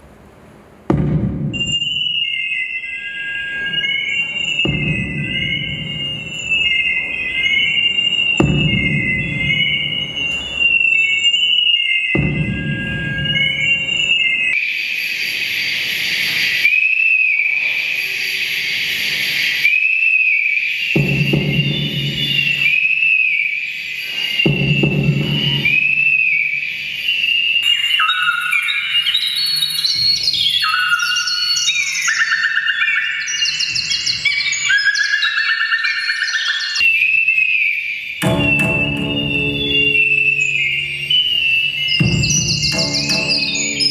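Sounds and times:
high feedback whistling tones: 1.5 - 43.9.

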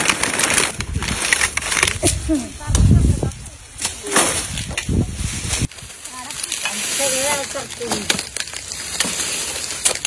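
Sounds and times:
dry leaves rustling and scraping: 0.0 - 10.0.

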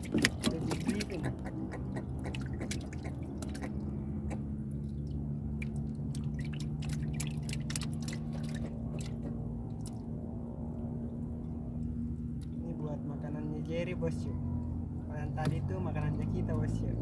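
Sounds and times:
steady low hum: 0.0 - 17.0
wet clicks of hands handling fish: 5.1 - 10.0.

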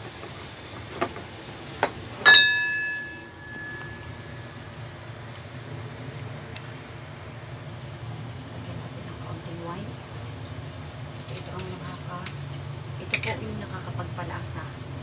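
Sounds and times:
steady low hum: 1.5 - 15.0
ringing clink of hard object: 2.2 - 4.3.

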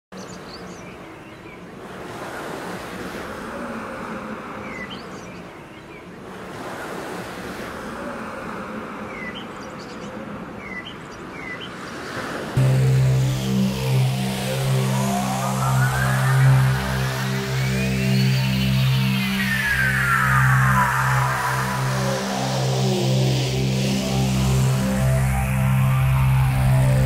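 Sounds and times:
loud sustained tone: 12.6 - 27.0
rushing noise: 12.6 - 27.0.

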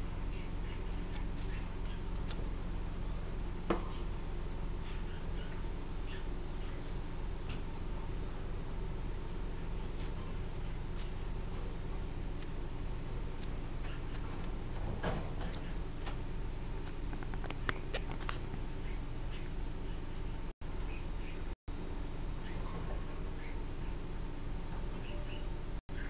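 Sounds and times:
marmosets squeaking: 0.0 - 4.1, 4.8 - 7.2, 8.0 - 15.8, 16.8 - 20.1, 22.4 - 23.6, 24.9 - 26.0
steady low hum: 0.0 - 26.0.

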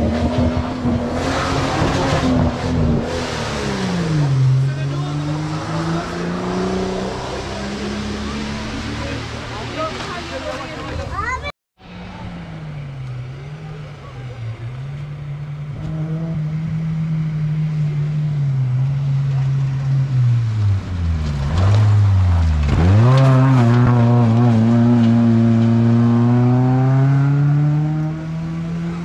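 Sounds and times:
race car engine revving past: 0.0 - 10.7, 21.4 - 29.0.

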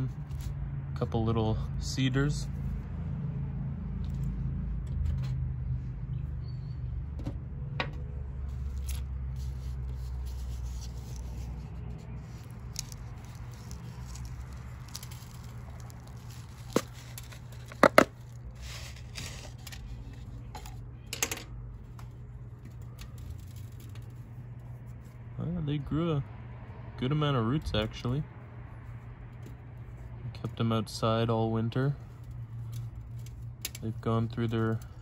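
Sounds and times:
plastic cup crackling: 8.5 - 20.9.

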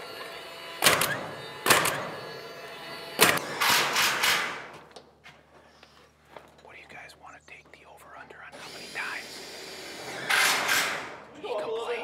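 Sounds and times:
nail gun firing into metal: 0.8 - 2.2, 3.2 - 4.7, 10.3 - 11.2.

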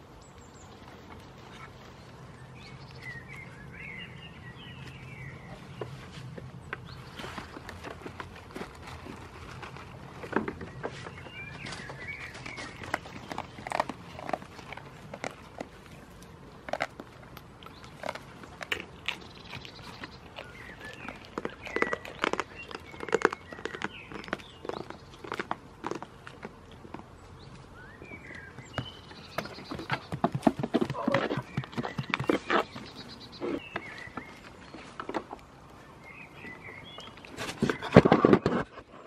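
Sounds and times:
goat hooves knocking on wood: 28.7 - 32.8.

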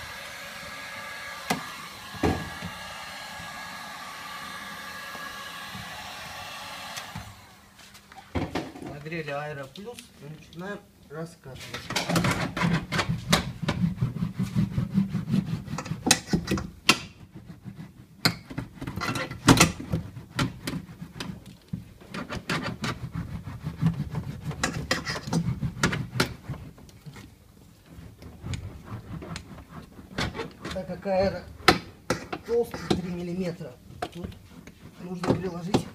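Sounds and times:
roller rubbing on damping sheet: 12.4 - 16.4, 17.2 - 21.6, 22.2 - 35.9.

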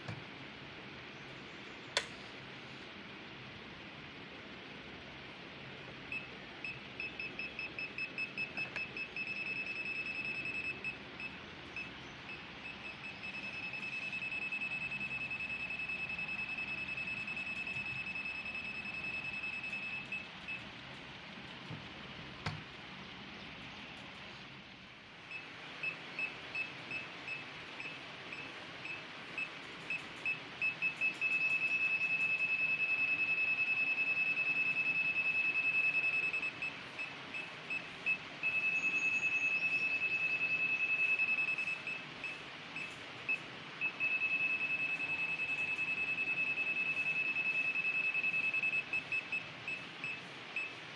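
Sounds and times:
multimeter high beeping tone: 6.1 - 20.6, 25.3 - 50.8.

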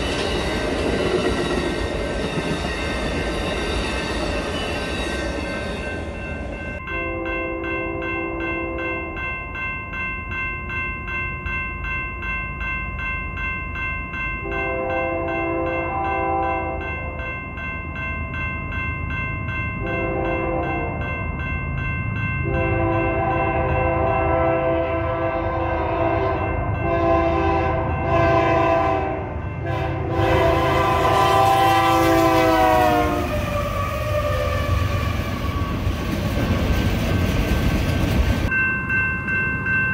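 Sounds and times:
train rumbling past: 0.0 - 9.7, 14.2 - 39.8
railroad crossing bell ringing: 0.0 - 36.5, 38.3 - 39.9
locomotive horn blasts: 6.9 - 9.1, 14.4 - 16.9, 19.8 - 21.0, 22.4 - 35.5.

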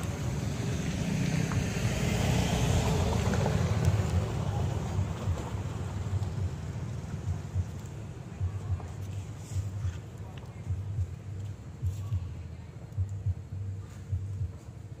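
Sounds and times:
cars passing on dirt road: 0.0 - 11.9.

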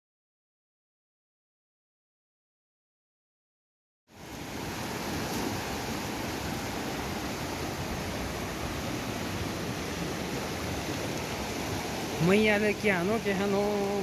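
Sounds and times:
river rushing over boulders: 4.1 - 14.0.

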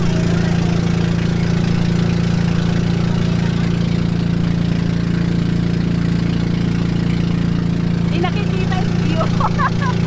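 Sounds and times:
motorboat engine running: 0.0 - 10.0.

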